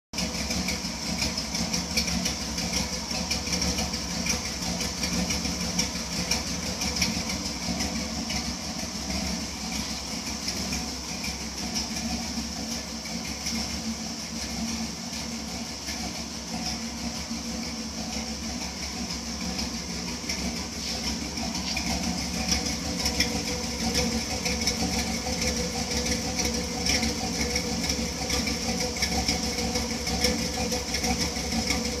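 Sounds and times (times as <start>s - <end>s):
truck engine idling: 0.2s - 32.0s.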